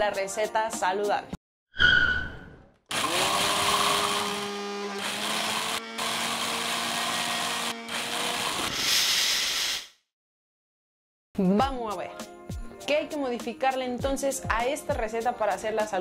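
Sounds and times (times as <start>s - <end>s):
small electric motor whirring: 2.9s - 8.7s.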